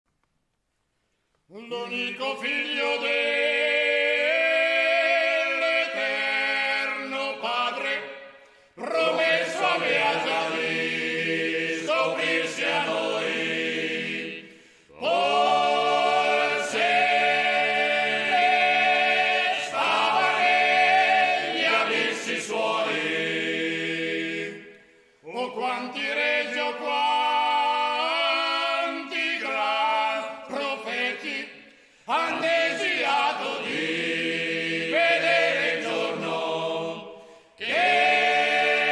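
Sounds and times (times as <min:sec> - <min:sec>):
men singing a cappella harmony: 0:08.8 - 0:38.9.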